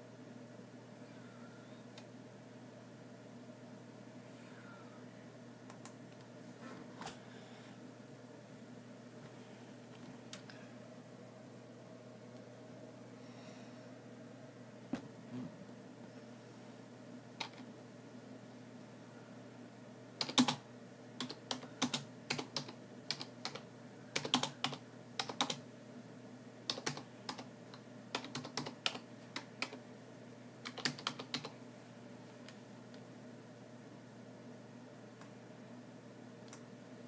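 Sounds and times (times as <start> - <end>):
typing on computer keyboard: 20.2 - 20.6, 21.2 - 23.6, 24.2 - 25.6, 26.7 - 27.5, 28.1 - 29.8, 30.6 - 31.5.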